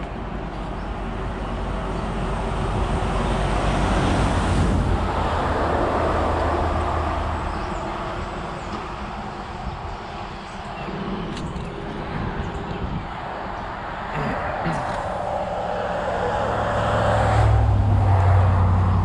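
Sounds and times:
vehicle driving by: 13.9 - 19.0.

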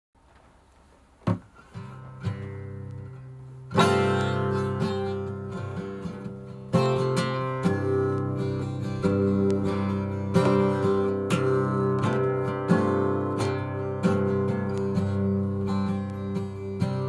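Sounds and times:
acoustic guitar: 0.4 - 17.0
knock: 1.2 - 1.5.

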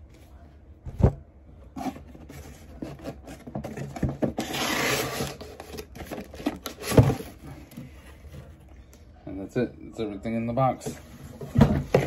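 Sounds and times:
cardboard scraping: 1.6 - 8.6
cardboard knocking and sliding: 11.3 - 12.0.

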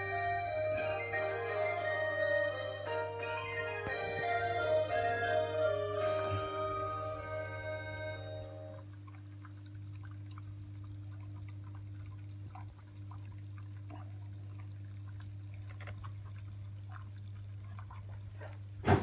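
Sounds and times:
steady low hum: 0.0 - 18.9
water dripping and trickling: 8.7 - 18.8.

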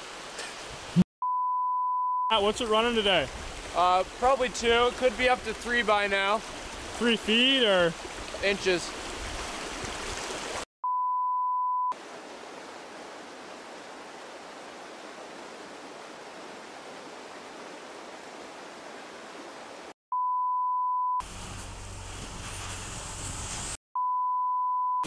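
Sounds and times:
creek whitewater rushing: 2.3 - 10.6.

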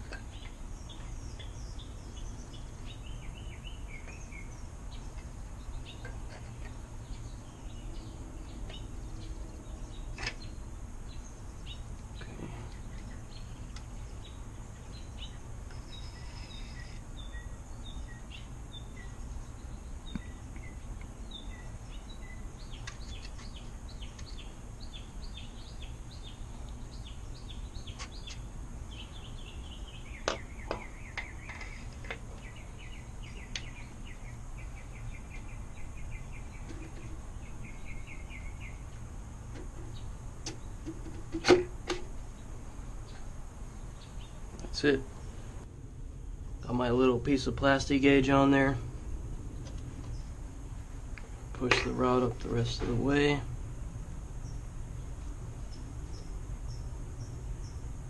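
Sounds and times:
small birds chirping: 0.0 - 41.5, 42.1 - 45.6, 46.6 - 58.0.

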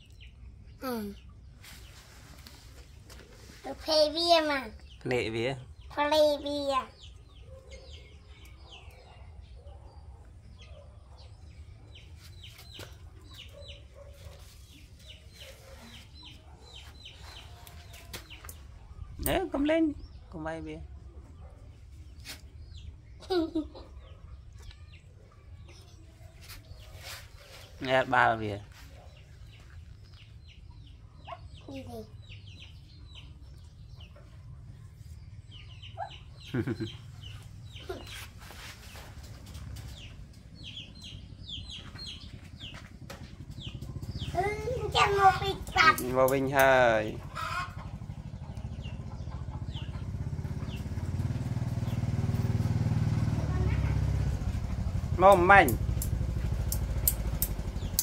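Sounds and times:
chicks peeping: 7.0 - 19.4, 28.8 - 58.0
chickens clucking: 35.4 - 53.4.

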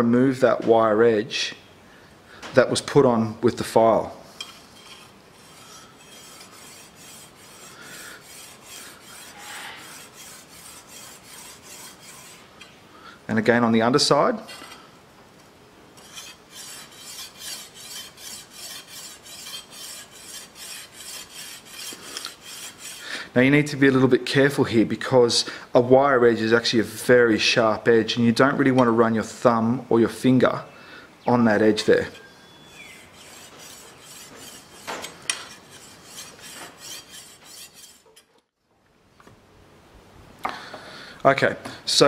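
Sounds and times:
stone scraping steel blade: 4.4 - 12.4, 16.0 - 23.0, 31.8 - 38.5.

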